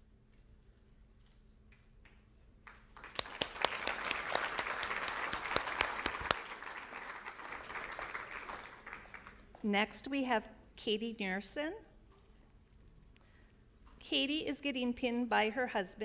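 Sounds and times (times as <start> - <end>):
audience applauding: 2.6 - 9.6.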